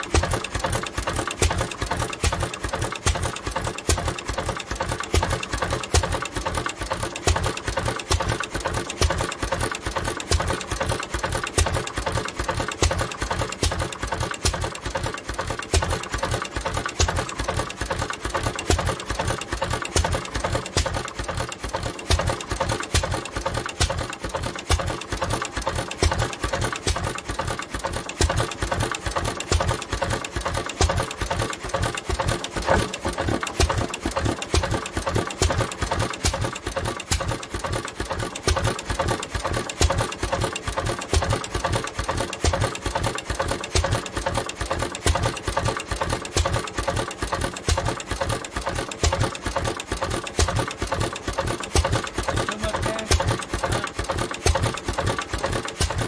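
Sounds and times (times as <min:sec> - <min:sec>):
engine clattering: 0:00.0 - 0:56.0.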